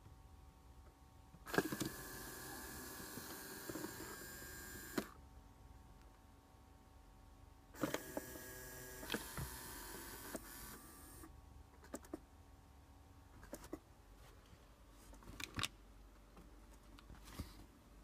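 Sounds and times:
small electric motors whirring: 1.5s - 5.2s, 7.8s - 11.2s.

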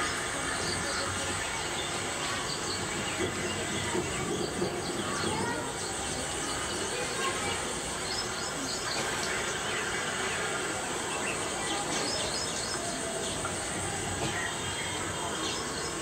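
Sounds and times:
small birds chirping: 0.0s - 16.0s
steady hiss: 0.0s - 16.0s.

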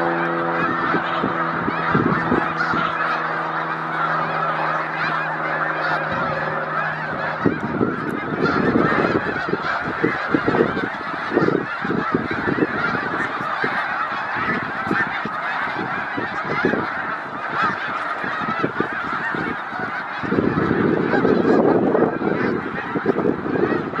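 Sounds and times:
flock of geese honking: 0.0s - 24.0s
low rumbling noise: 0.0s - 24.0s.

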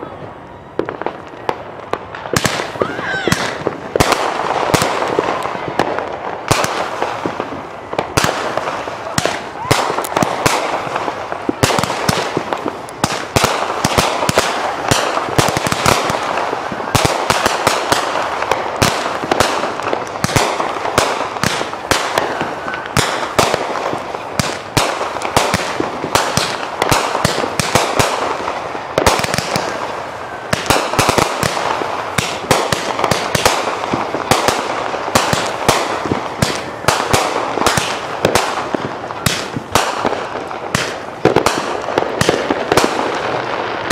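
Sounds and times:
fireworks crackling: 0.0s - 43.9s
fireworks pops and cracks: 0.0s - 43.9s.

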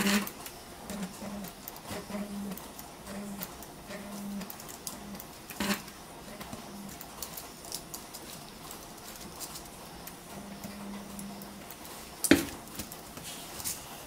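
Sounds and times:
soldering gun humming: 0.0s - 7.5s.

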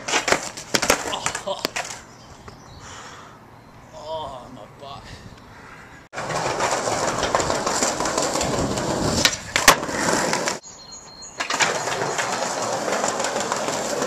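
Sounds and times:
skateboard clacks: 0.0s - 2.0s, 6.2s - 10.6s, 11.4s - 14.0s
skateboard wheels rolling on concrete: 0.0s - 2.7s, 6.1s - 14.0s.

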